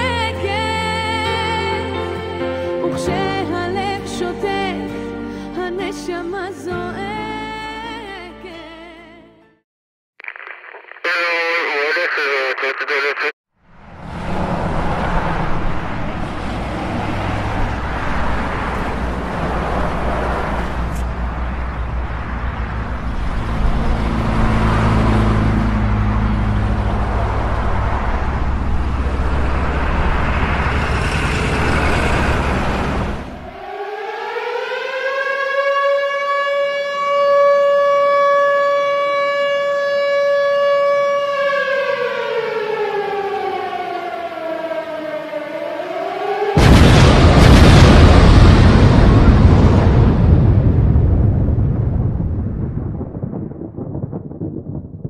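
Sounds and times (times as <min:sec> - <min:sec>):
warning siren wailing: 0:21.3 - 0:48.2.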